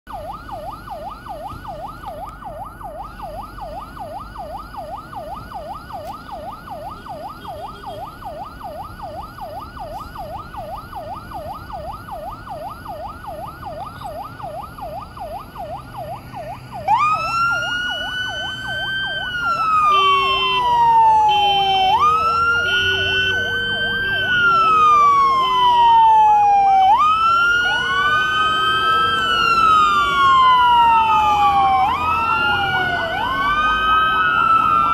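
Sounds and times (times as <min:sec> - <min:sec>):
siren wail: 0:00.1 - 0:34.9
siren fast warbling yelp: 0:00.2 - 0:34.9
two-note hi-lo siren tone: 0:17.2 - 0:26.0.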